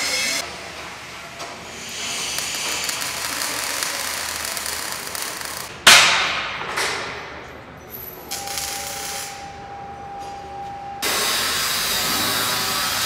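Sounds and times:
arc welding crackling hiss: 0:01.6 - 0:05.7, 0:11.0 - 0:13.0.

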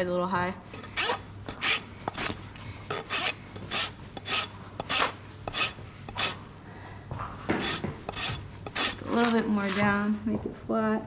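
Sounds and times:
rasp scraping hoof: 0:00.8 - 0:06.4, 0:07.5 - 0:10.0.

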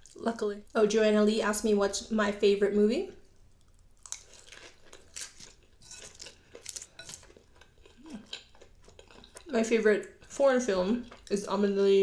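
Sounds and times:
chewing crispy fried chicken: 0:03.6 - 0:10.4.

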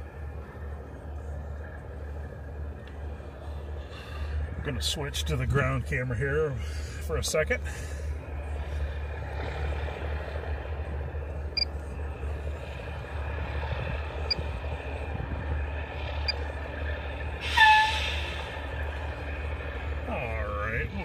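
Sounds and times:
truck diesel engine rumbling: 0:00.0 - 0:21.0
air brake hiss: 0:17.4 - 0:18.5.

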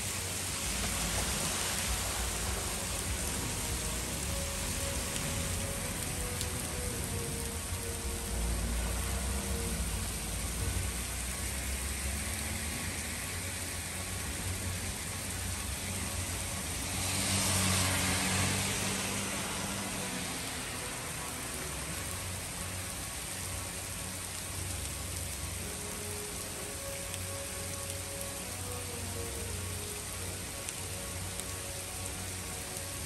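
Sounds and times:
heavy rain on a street: 0:00.0 - 0:33.0
tyres hissing through water: 0:00.0 - 0:33.0.

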